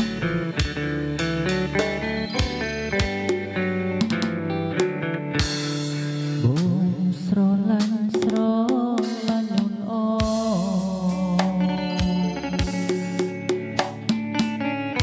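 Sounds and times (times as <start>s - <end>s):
sliding pitch melody: 0.0s - 5.4s, 11.2s - 14.1s
drums: 0.0s - 15.0s.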